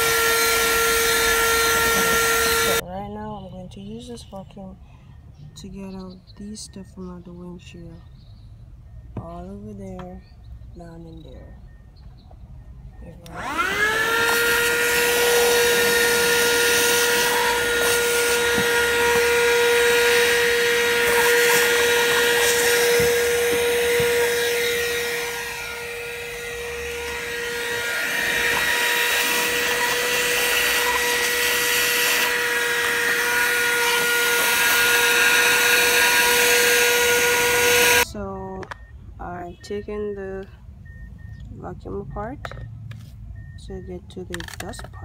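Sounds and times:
handheld vacuum motor whine: 0.0 - 2.8, 13.2 - 38.1.

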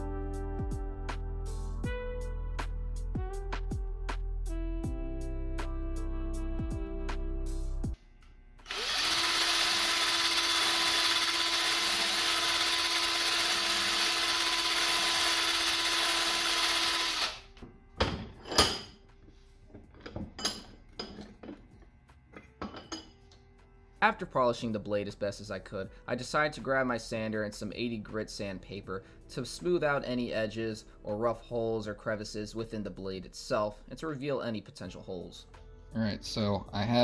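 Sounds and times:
drill with wire brush scraping: 8.6 - 17.5.

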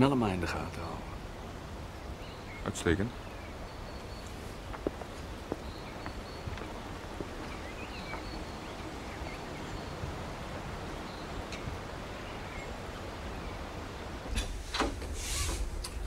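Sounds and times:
steady hiss: 0.0 - 16.0
faint bird chirps: 0.4 - 10.2.

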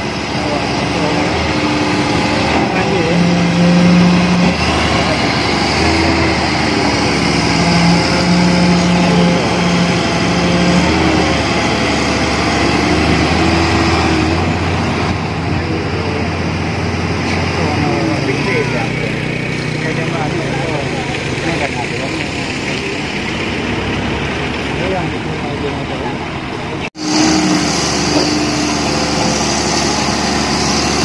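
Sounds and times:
excavator diesel engine running: 0.0 - 31.0
humming tone: 1.2 - 14.9.

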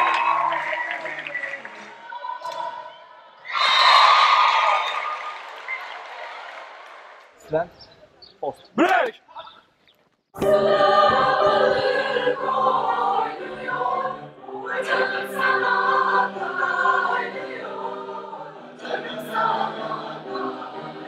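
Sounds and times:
choir singing held chords: 10.4 - 21.0.

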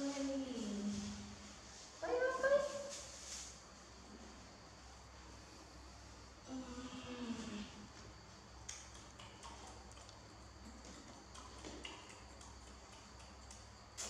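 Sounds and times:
person humming: 6.4 - 7.8
soft lip-smacking clicks: 8.6 - 10.3, 10.9 - 14.0.

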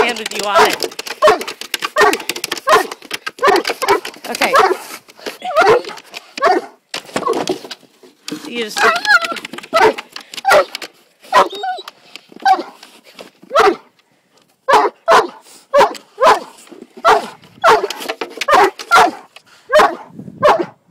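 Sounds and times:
dog barking: 0.5 - 4.8, 5.4 - 6.8, 9.7 - 10.7, 11.3 - 11.8, 12.4 - 12.8, 13.5 - 13.9, 14.7 - 20.8.

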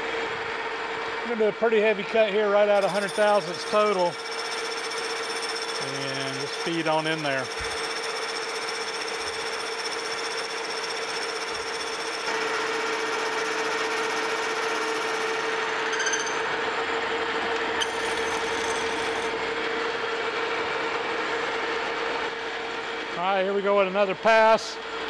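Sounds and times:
tool cutting metal hiss: 2.8 - 12.3
lathe humming: 2.8 - 17.0, 17.6 - 19.8.

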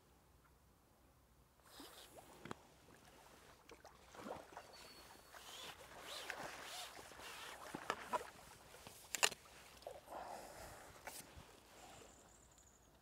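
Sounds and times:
light splashing water: 1.8 - 10.2
fishing tackle rustling and clicking: 5.0 - 10.0, 10.8 - 12.9.

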